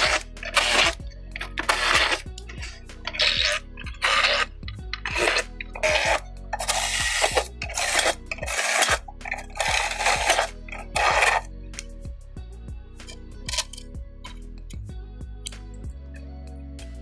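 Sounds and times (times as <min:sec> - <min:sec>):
cordless drill boring through metal: 0:00.0 - 0:11.5
background music: 0:00.0 - 0:17.0.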